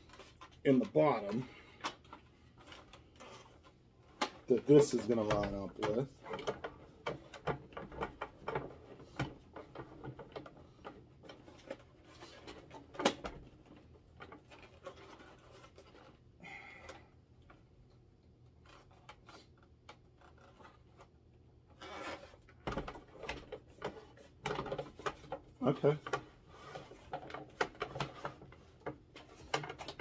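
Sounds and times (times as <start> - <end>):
plastic toy knocking and rubbing: 3.3 - 16.0, 21.8 - 30.0.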